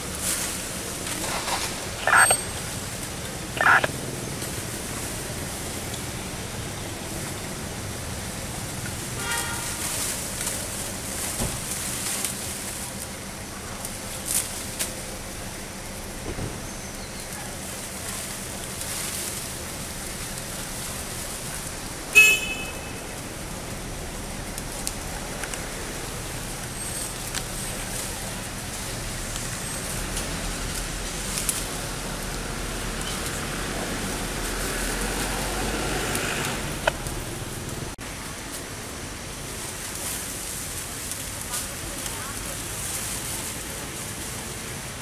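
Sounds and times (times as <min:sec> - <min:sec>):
outdoor background hiss: 0:00.0 - 0:45.0
high squeaky calls: 0:01.9 - 0:02.8, 0:03.4 - 0:03.9.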